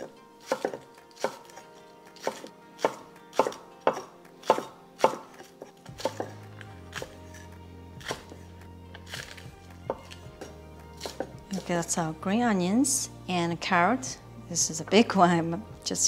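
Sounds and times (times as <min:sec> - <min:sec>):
knife chopping on wooden board: 0:00.0 - 0:01.6, 0:02.2 - 0:07.4, 0:08.0 - 0:08.4, 0:09.0 - 0:11.7.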